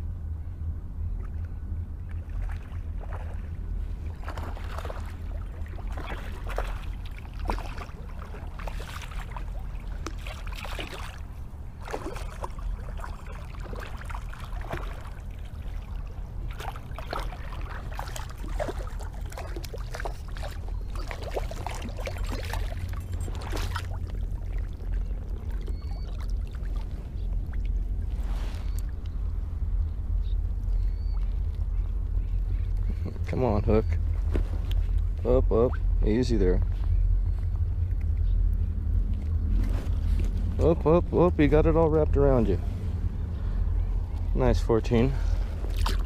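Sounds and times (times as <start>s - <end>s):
low rumble: 0.0s - 46.0s
fish splashing in water: 4.1s - 28.0s, 45.3s - 46.0s.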